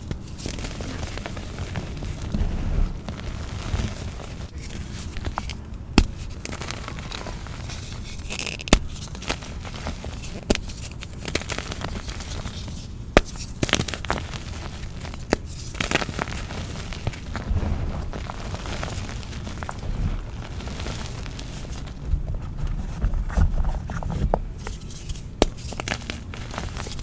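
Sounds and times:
chalk crunching and crackling: 0.0 - 27.0
powder being squeezed: 3.0 - 22.0, 24.6 - 27.0.

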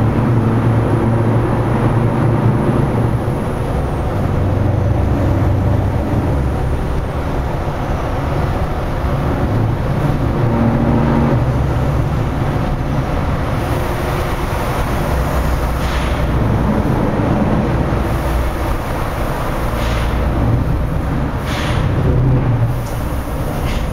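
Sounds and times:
truck engine droning: 0.0 - 23.9
tyre and traffic noise: 0.0 - 23.9
brief hisses: 21.4 - 21.9.

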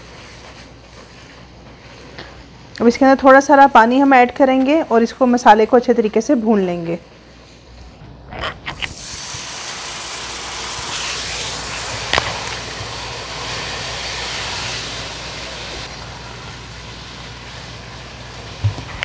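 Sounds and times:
masala sizzling in oil: 8.9 - 19.0.

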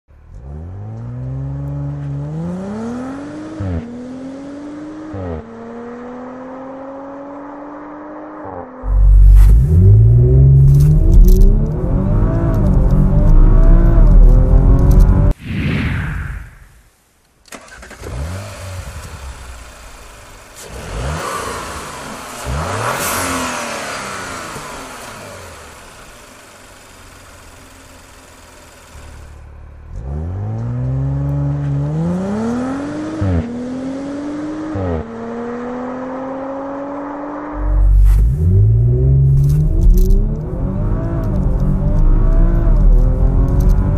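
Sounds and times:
car engine accelerating: 0.1 - 15.4, 17.6 - 43.9
gear shift exhaust bursts: 8.8 - 15.4, 37.5 - 43.9
car engine idling: 18.8 - 20.6, 23.9 - 30.0.

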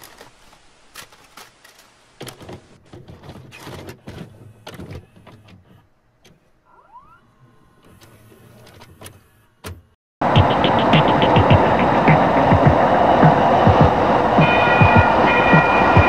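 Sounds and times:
low hum: 10.2 - 16.0
rising mechanical whine: 10.2 - 16.0.

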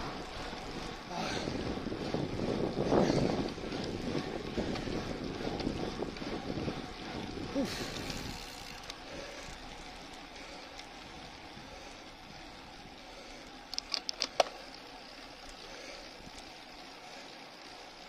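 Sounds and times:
bicycle tyres on asphalt: 0.0 - 18.0
wind hiss: 1.1 - 9.6
sharp clicks: 13.6 - 14.9.

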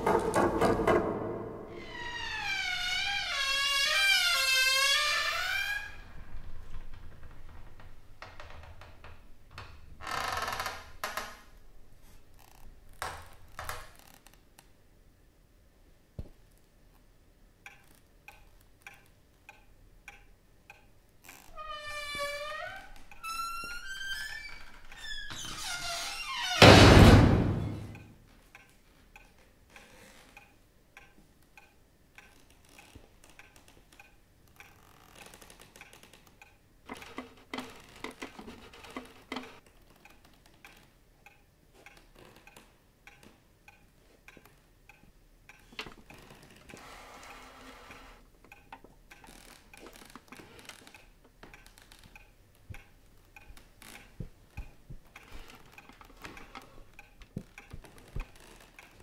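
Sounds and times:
clock ticking: 17.6 - 21.1, 27.9 - 32.6, 39.0 - 46.2, 48.4 - 59.0.

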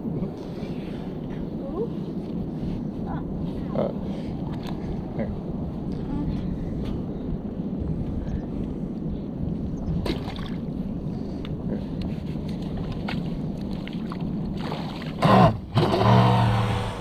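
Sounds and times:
light wind: 0.0 - 17.0
water noise: 9.5 - 17.0
electric boat motor whine: 15.2 - 17.0.

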